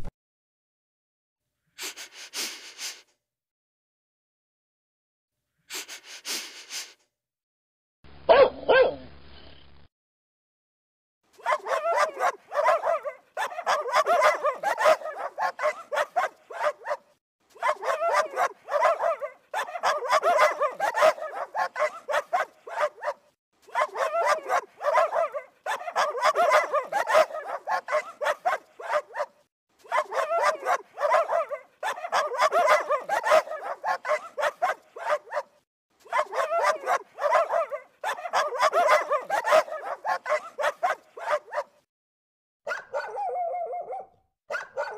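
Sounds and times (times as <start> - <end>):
dogs barking: 8.3 - 9.0, 11.4 - 41.8, 42.7 - 44.9.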